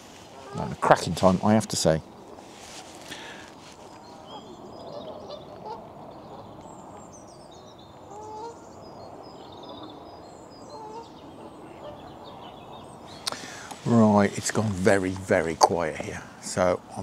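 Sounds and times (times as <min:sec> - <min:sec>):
steady outdoor hiss: 0:00.0 - 0:17.0
small birds chirping: 0:00.1 - 0:17.0
waterfowl rising calls: 0:00.3 - 0:01.0, 0:04.0 - 0:06.4, 0:08.0 - 0:08.7, 0:10.6 - 0:14.3.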